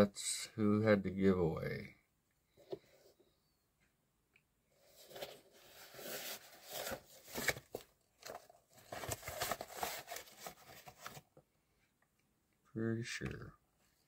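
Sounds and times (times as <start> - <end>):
paper packaging rustling: 4.8 - 11.4.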